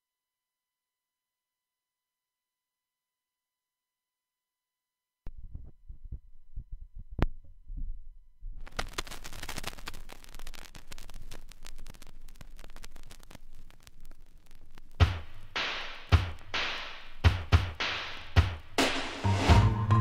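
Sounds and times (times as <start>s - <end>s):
vinyl crackle and pops: 5.2s - 19.2s
music with heavy drum hit: 15.0s - 20.0s.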